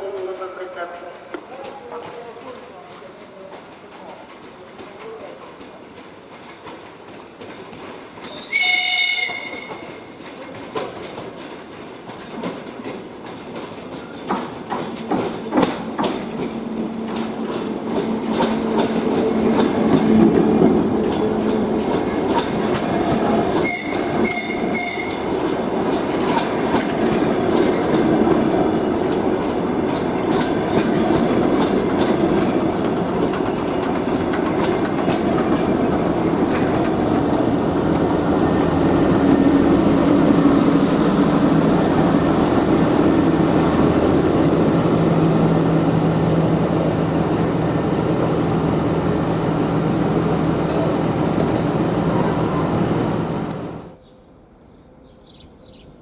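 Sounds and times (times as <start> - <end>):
train engine and rolling noise: 0.0 - 56.0
train wheels clicking over rail joints: 1.4 - 48.8, 50.0 - 51.9
train horn blast: 8.5 - 9.8, 23.6 - 25.2.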